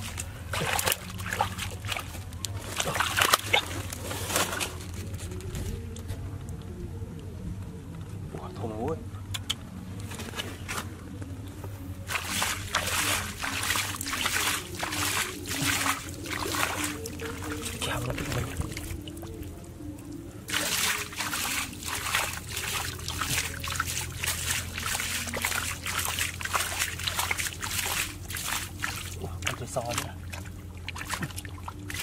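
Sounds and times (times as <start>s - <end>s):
hands splashing in muddy puddle: 0.0s - 4.9s, 12.0s - 19.4s, 20.5s - 32.0s.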